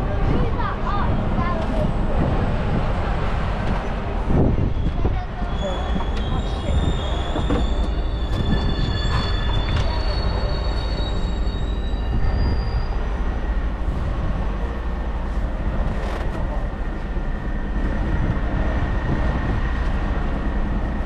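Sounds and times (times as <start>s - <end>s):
vehicle rumble: 0.0s - 21.0s
high-pitched squealing tones: 4.8s - 13.2s.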